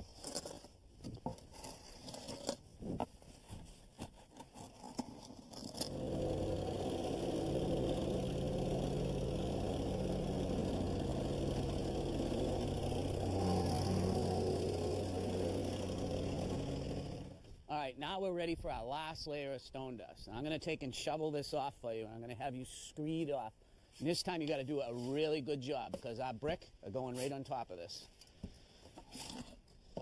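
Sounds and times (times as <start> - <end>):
wooden board scraping stone dust: 0.0 - 6.6
plate compactor running: 5.6 - 17.5.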